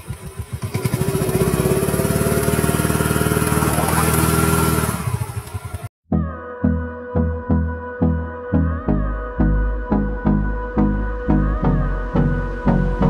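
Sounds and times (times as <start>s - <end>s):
scooter engine revving: 0.0s - 5.9s
soft background music with beat: 6.1s - 13.0s.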